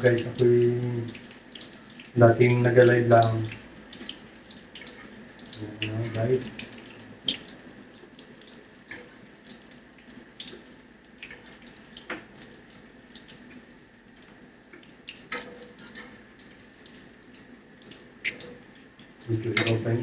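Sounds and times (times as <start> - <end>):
patties sizzling in frying pan: 0.0 - 20.0.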